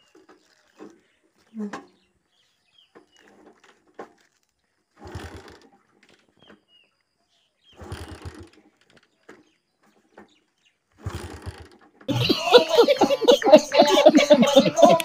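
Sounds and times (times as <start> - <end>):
faint bird chirps: 0.0 - 3.4.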